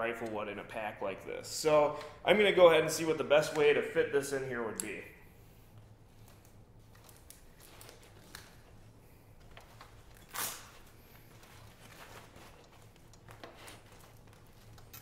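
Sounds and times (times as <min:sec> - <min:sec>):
fabric and straps rustling: 0:06.0 - 0:15.0.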